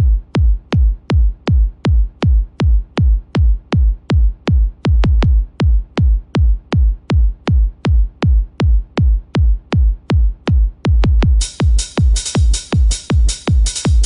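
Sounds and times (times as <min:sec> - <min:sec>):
drum machine kick drum: 0:00.0 - 0:14.0
electronic techno music: 0:00.0 - 0:14.0.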